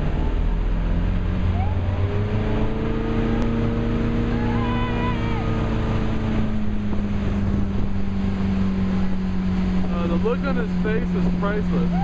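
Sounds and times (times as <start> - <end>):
motorboat engine under load: 0.0 - 12.0
rushing water: 0.0 - 12.0.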